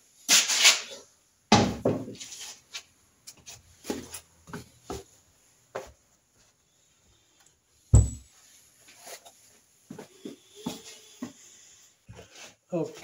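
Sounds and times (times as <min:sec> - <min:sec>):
loud scrape or rustle: 0:00.3 - 0:01.1
heavy thud with rattle: 0:08.0 - 0:08.3.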